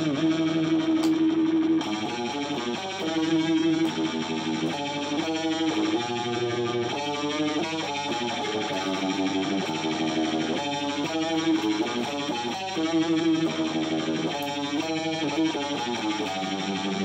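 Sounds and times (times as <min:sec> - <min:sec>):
electric guitar blues lead: 0:00.0 - 0:17.0.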